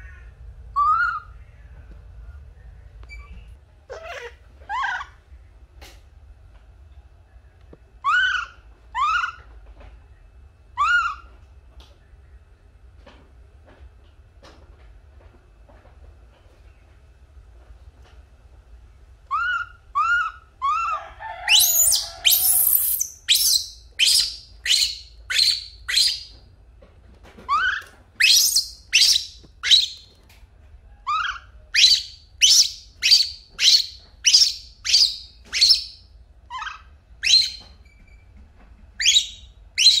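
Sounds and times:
infant monkey crying: 0.0s - 1.3s, 3.9s - 5.2s, 8.0s - 9.5s, 10.8s - 11.3s, 19.3s - 26.3s, 27.5s - 30.0s, 31.0s - 35.9s, 36.5s - 37.6s
harsh monkey screech: 8.0s - 9.4s, 10.8s - 11.3s, 19.3s - 26.3s, 27.5s - 30.0s, 31.1s - 37.6s, 39.0s - 40.0s.

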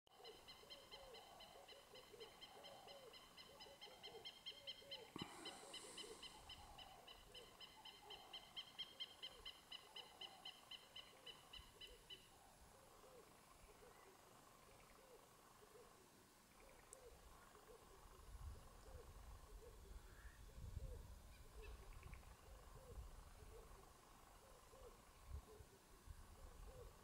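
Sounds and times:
fast pulsed high bird call: 0.2s - 12.3s.

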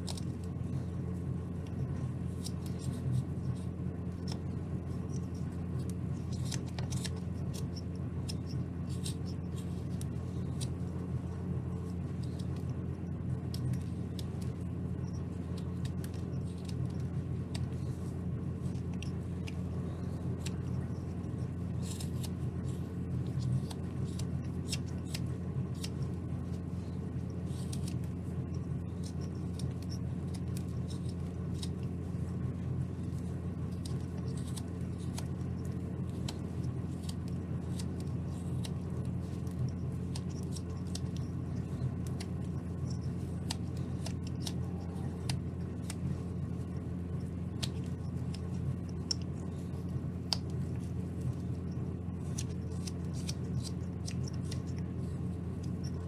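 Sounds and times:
steady low hum: 0.0s - 56.0s
knife scraping wood: 13.4s - 56.0s.

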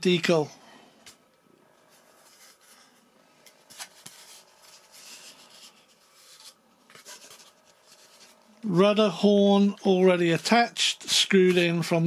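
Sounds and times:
foam rubbing and rustling: 1.9s - 8.5s.

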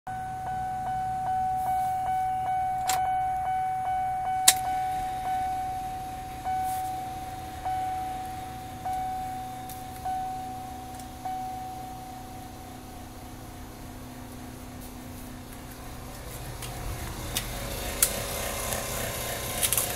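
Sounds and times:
warning chime dinging: 0.1s - 15.1s
low hum: 0.1s - 19.9s.

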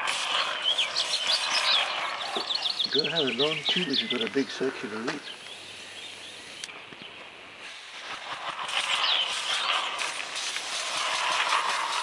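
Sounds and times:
hissing puffing of air exhaust: 7.6s - 12.0s.

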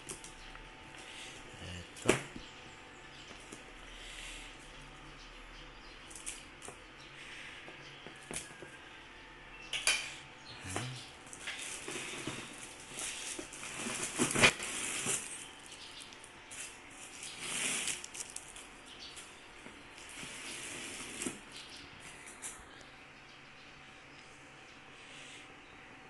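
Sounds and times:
packaging crinkling and rustling: 11.2s - 22.6s.

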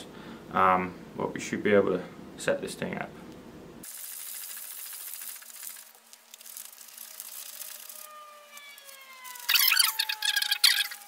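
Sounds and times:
fishing reel rattling tick: 3.8s - 8.2s
line rubbing: 3.9s - 11.0s
faint falling whine: 6.3s - 11.0s.

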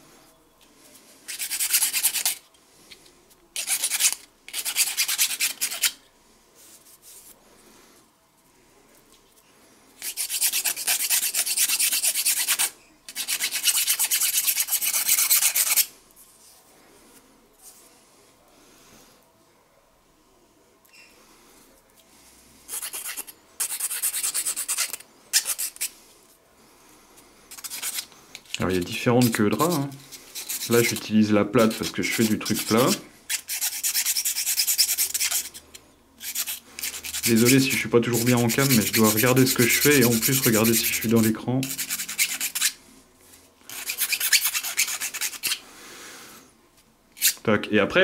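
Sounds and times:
needle file rasping: 27.5s - 28.6s, 29.2s - 31.0s, 31.6s - 42.8s, 43.7s - 45.6s
abrasive sanding strokes: 29.2s - 35.6s, 36.2s - 42.8s.

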